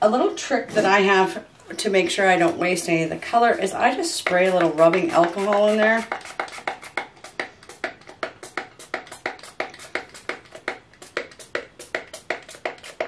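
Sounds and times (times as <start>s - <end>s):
spray bottle spritzing: 4.4s - 13.0s.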